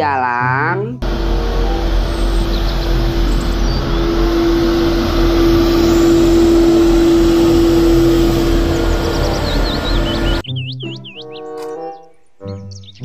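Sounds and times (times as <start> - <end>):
street sweeper engine whining: 1.0 - 10.4.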